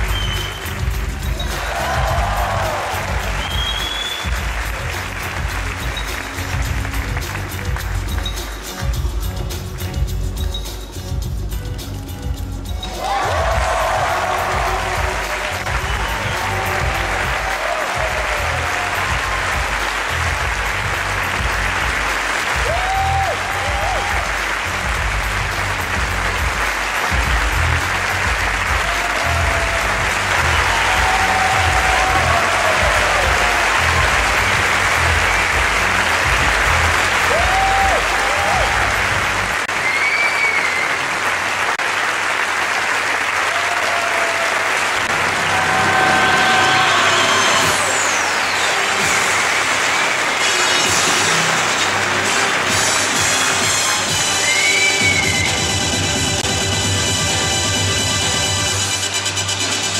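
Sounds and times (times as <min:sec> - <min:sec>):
audience applauding: 0:00.0 - 0:09.1, 0:12.8 - 0:57.1
music with pulsing bass beat: 0:00.0 - 0:39.7, 0:55.0 - 0:59.9.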